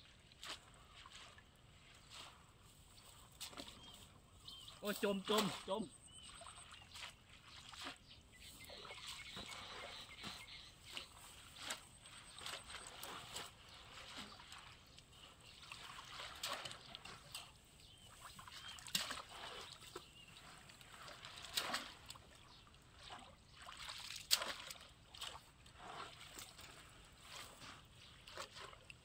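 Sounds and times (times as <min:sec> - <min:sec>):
splashing in shallow muddy water: 0:00.0 - 0:29.0.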